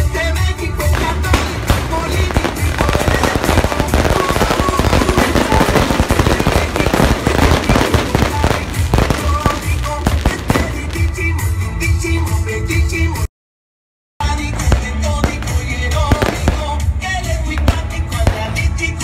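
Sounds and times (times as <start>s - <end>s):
music playing: 0.0s - 13.3s, 14.2s - 19.0s
fireworks crackling bangs: 0.8s - 11.7s, 14.5s - 19.0s.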